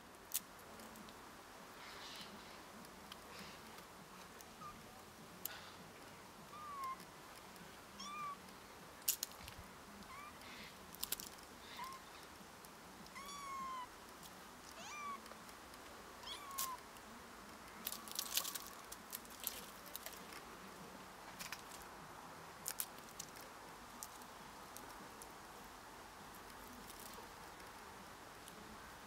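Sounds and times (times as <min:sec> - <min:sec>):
kitten meowing: 0:06.5 - 0:07.0, 0:08.0 - 0:08.4, 0:13.2 - 0:13.9, 0:14.8 - 0:15.2, 0:16.2 - 0:16.8.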